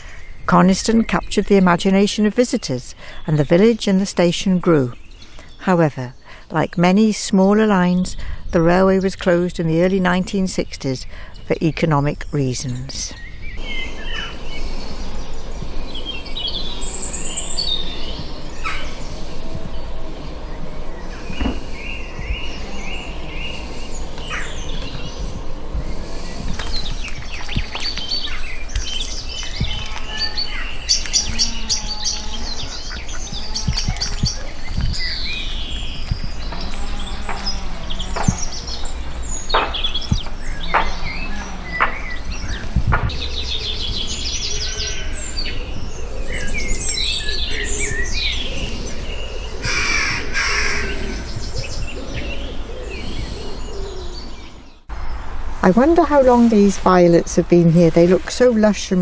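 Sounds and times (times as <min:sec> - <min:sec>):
birds chirping and whistling: 0:00.0 - 0:06.6, 0:10.5 - 0:59.0
low rumble: 0:13.2 - 0:59.0.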